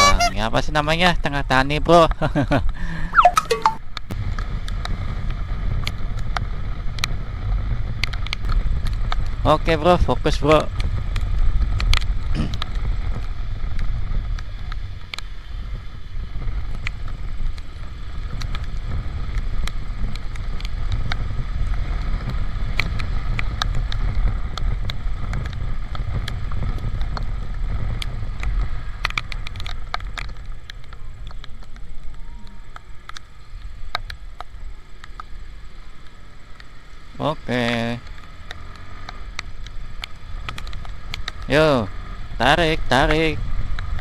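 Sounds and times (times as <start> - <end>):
wind and road noise rumble: 0.0 - 3.2, 3.8 - 44.0
sharp ticks: 38.0 - 41.4.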